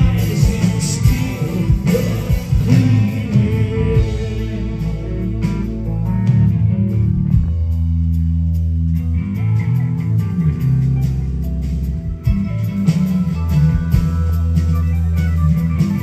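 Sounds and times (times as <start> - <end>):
bass guitar: 0.0 - 16.0
drums: 0.0 - 16.0
electric guitar: 0.0 - 16.0.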